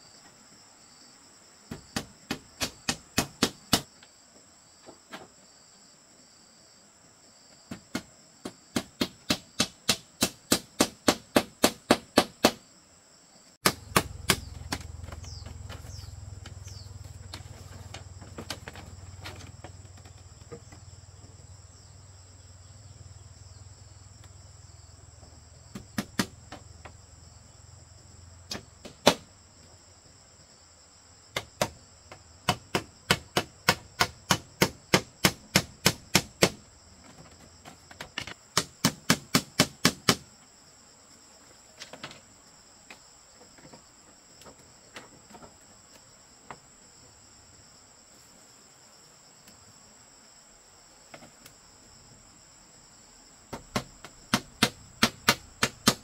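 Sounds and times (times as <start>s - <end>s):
hammer blows on bamboo frame: 1.7s - 3.9s, 7.7s - 12.7s, 13.6s - 17.6s, 25.7s - 27.0s, 28.5s - 29.3s, 31.3s - 36.7s, 38.2s - 40.3s, 53.5s - 56.0s
insects shrilling: 13.6s - 29.5s.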